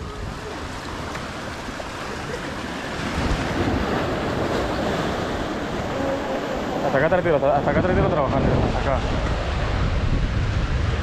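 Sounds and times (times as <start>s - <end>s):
surf breaking over rocks: 0.0s - 11.0s.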